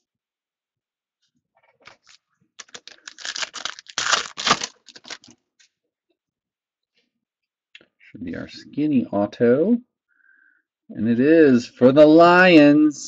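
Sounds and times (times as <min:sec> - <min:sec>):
plastic foil wrapper crinkling: 0:01.9 - 0:05.4.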